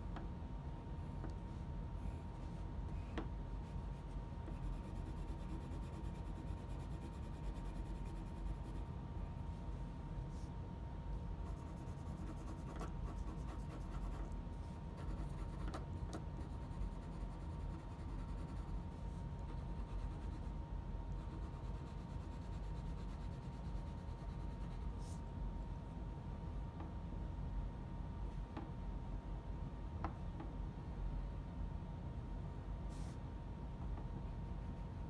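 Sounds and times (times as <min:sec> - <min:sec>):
steady low hum: 0:00.0 - 0:35.0
pencil scratching on paper: 0:03.6 - 0:08.8, 0:11.5 - 0:14.3, 0:15.0 - 0:20.5, 0:21.2 - 0:25.2.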